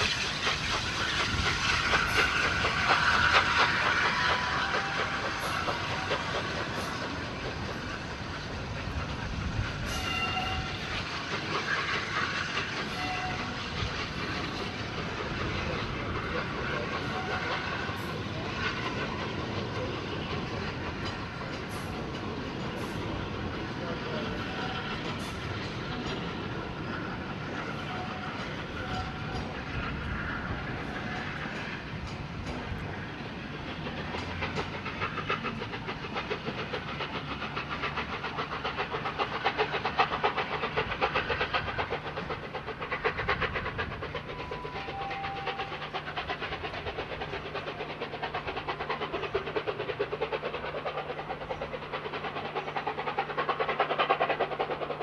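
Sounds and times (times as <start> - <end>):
steam locomotive exhaust beating: 0.0 - 55.0
train wheels clattering over rail joints: 0.0 - 55.0.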